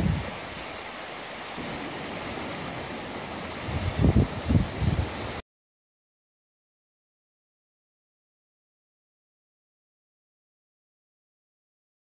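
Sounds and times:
wind buffeting microphone: 0.0 - 0.8, 1.6 - 5.4
river water rushing: 0.0 - 5.4.

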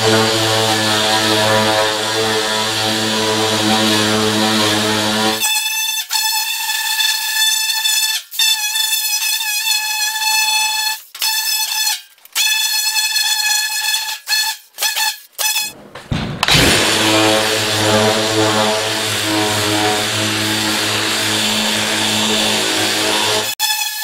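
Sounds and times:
angle grinder grinding metal: 0.0 - 5.4, 16.5 - 24.0.

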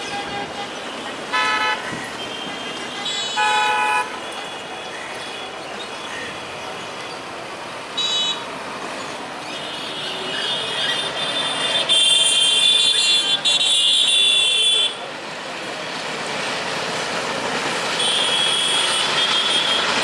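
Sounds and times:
train horn toots: 0.0 - 4.2, 18.0 - 20.0
passenger train running: 0.0 - 20.0.

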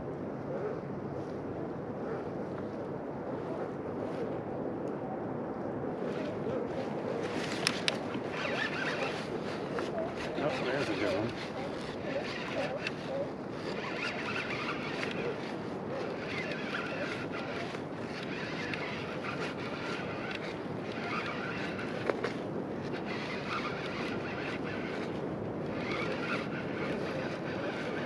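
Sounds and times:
wind: 0.0 - 28.0
fishing reel winding: 7.4 - 28.0.

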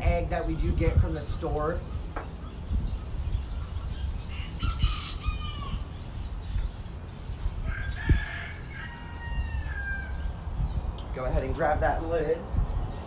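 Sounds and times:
chickens calling: 0.6 - 13.0
rooster crowing: 4.3 - 6.0, 7.6 - 10.4
steady low rumble: 9.6 - 13.0.

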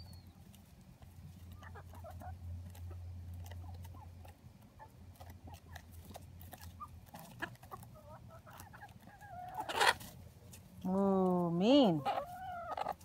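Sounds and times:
chickens clucking and chirping: 0.0 - 13.0.

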